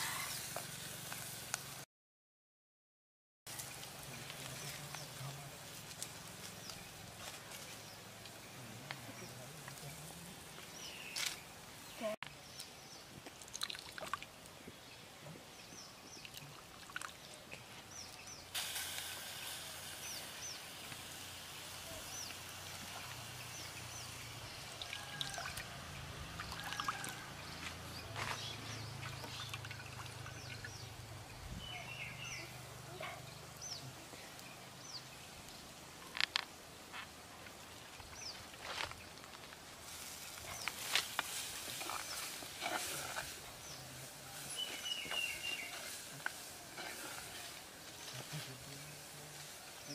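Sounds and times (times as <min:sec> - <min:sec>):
water sloshing in metal bowl: 0:29.0 - 0:30.6.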